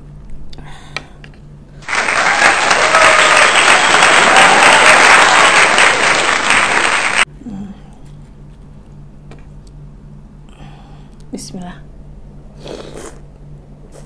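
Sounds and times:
crowd clapping: 0:01.8 - 0:07.3.

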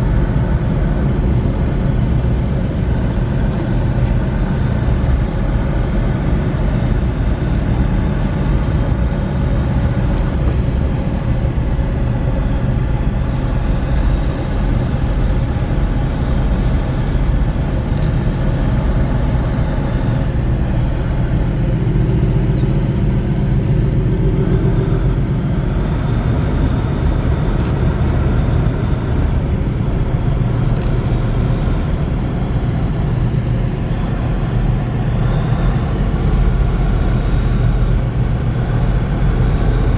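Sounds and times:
ship engines droning: 0:00.0 - 0:39.9
higher engine tone: 0:08.6 - 0:39.9.

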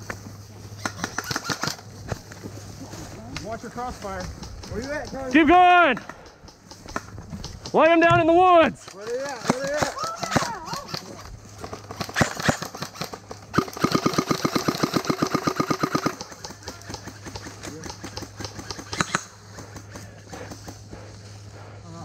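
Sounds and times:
airsoft rifle shots: 0:00.8 - 0:01.8, 0:04.2 - 0:20.8.

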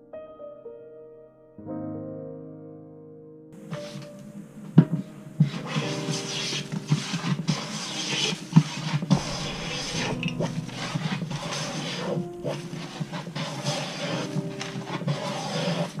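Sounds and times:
sharp knocks: 0:09.1 - 0:13.2
hand plane shaving wood: 0:13.4 - 0:15.9.

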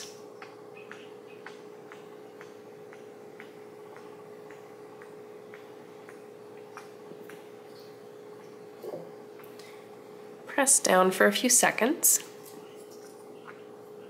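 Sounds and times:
steady low hum: 0:00.0 - 0:14.0
faint regular ticking: 0:00.2 - 0:10.4.

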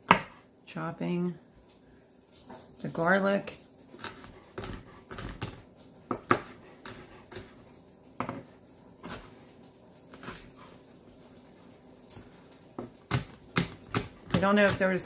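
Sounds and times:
knife chopping on plastic board: 0:00.0 - 0:00.4, 0:04.0 - 0:07.6, 0:12.8 - 0:15.0.

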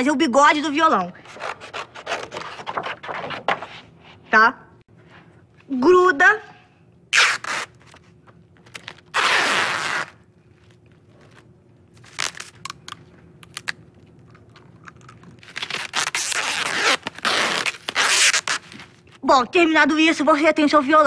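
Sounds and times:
sticky tape ripping off roll: 0:07.1 - 0:08.0, 0:08.6 - 0:10.2, 0:12.0 - 0:13.8, 0:15.4 - 0:19.0.

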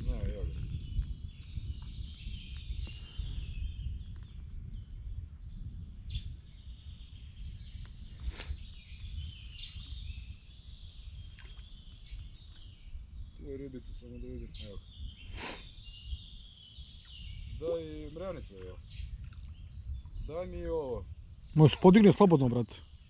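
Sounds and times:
birds chirping: 0:00.0 - 0:23.0.

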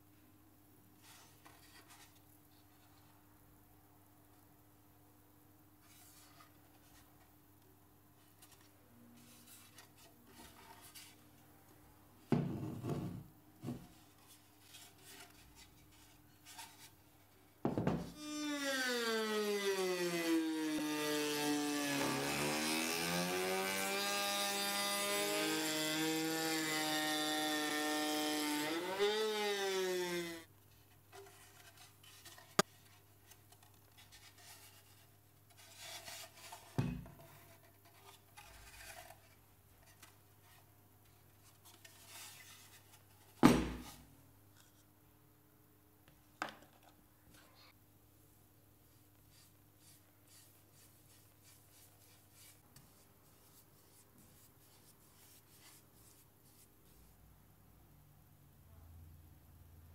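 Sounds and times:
rotary tool motor whine: 0:18.2 - 0:30.4.

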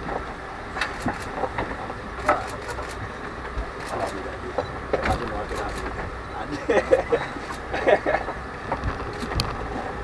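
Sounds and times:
sharp clicks and knocks: 0:00.0 - 0:06.1
boat engine rumbling: 0:00.0 - 0:10.0.

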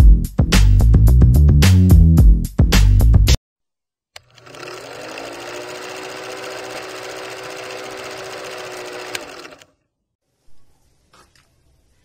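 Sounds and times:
film projector clatter: 0:04.2 - 0:09.7.

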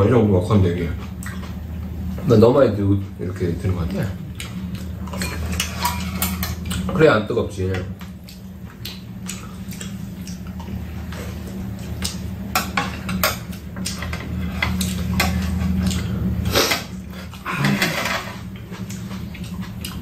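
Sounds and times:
steady low hum: 0:00.0 - 0:20.0
utensils clinking against bowls: 0:04.4 - 0:07.1, 0:12.1 - 0:19.5.

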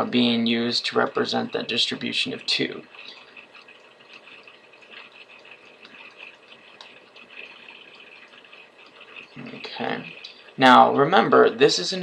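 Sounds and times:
faint steady hiss: 0:00.0 - 0:12.0
stylus ticking on drawing tablet: 0:00.9 - 0:11.6.

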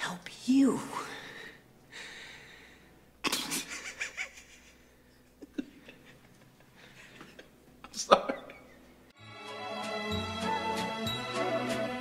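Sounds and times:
man laughing breathily: 0:03.6 - 0:08.8.

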